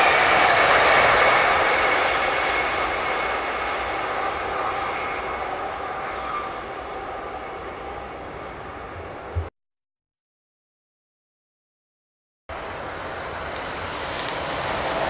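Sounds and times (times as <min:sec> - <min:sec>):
train wheels rolling on rail: 0:12.5 - 0:15.0.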